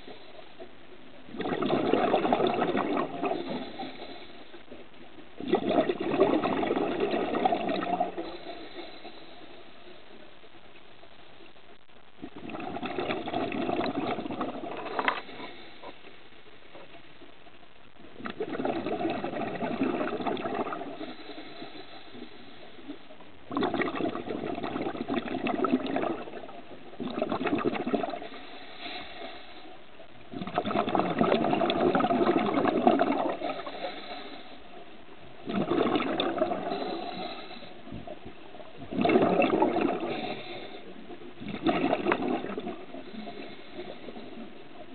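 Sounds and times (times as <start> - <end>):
diver's exhaled bubbles rushing: 1.3 - 4.3, 5.4 - 8.6, 12.2 - 15.7, 18.2 - 21.4, 23.5 - 28.4, 30.3 - 34.0, 35.4 - 38.1, 38.7 - 44.5.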